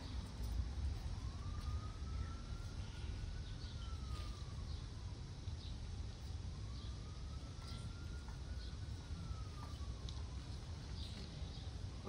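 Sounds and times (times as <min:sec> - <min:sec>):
low steady rumble: 0:00.0 - 0:12.0
siren wailing faintly: 0:00.0 - 0:12.0.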